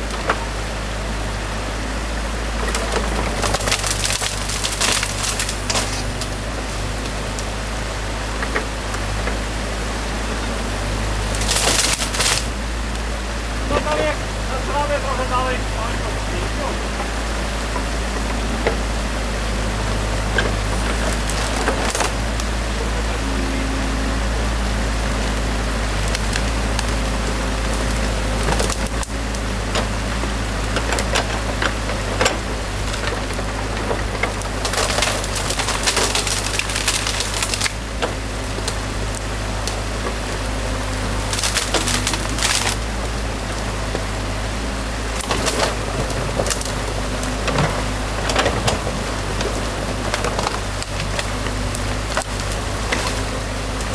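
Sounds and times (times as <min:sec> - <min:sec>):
excavator engine running: 0:00.0 - 0:53.9
wood cracking and snapping: 0:02.6 - 0:09.6, 0:10.8 - 0:18.9, 0:19.7 - 0:22.8, 0:25.4 - 0:53.9.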